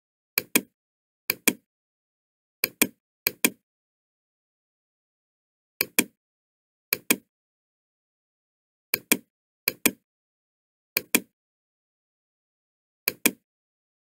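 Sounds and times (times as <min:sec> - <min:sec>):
computer mouse clicks: 0:00.4 - 0:00.7, 0:01.3 - 0:01.7, 0:02.6 - 0:03.6, 0:05.8 - 0:06.2, 0:06.9 - 0:07.3, 0:09.0 - 0:10.0, 0:11.0 - 0:11.3, 0:13.1 - 0:13.4.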